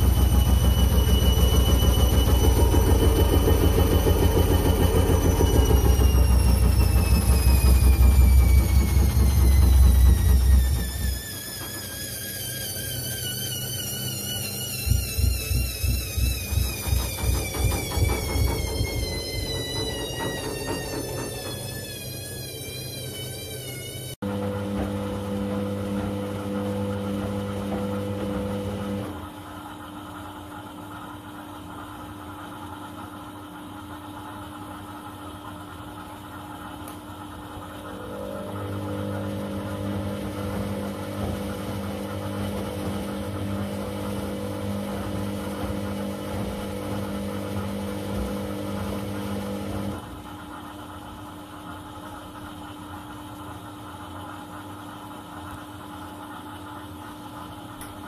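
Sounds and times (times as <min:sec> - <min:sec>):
washing machine drum tumbling: 0:00.0 - 0:29.1, 0:38.7 - 0:50.1
drum motor hum: 0:00.0 - 0:29.4, 0:37.3 - 0:55.2.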